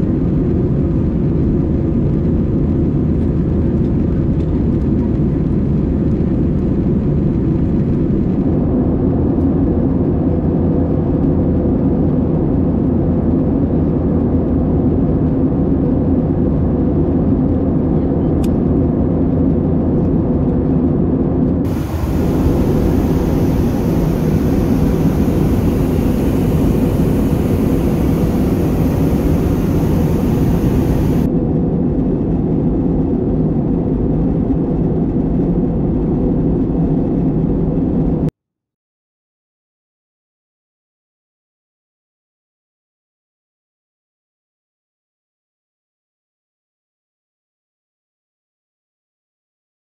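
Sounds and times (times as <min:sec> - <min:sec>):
aircraft engine drone in cabin: 0:00.0 - 0:21.1, 0:21.7 - 0:38.3.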